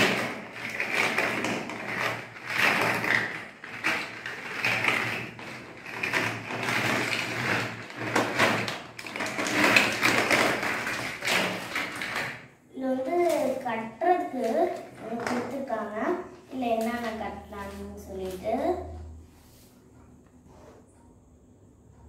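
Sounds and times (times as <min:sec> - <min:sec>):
plastic bag crinkling: 0:00.0 - 0:12.3
plastic blocks clattering: 0:00.0 - 0:12.5.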